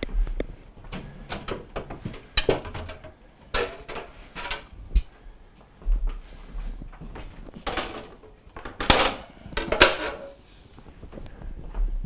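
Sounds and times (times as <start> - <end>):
glass shelf clicks and knocks: 0.9 - 4.7.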